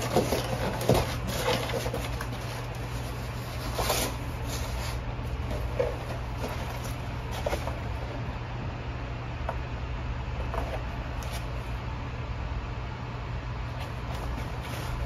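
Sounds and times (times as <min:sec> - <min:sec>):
plastic wrap rustling: 0:00.0 - 0:08.1
cardboard box rustling: 0:00.0 - 0:08.2, 0:13.7 - 0:15.0.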